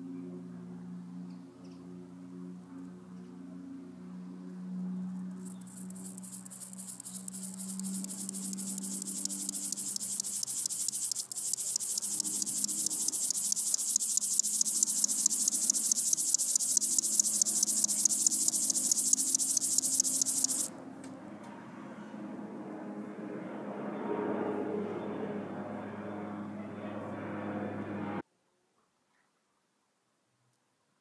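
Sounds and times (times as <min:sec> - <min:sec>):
grasshopper stridulating: 0:05.2 - 0:20.7.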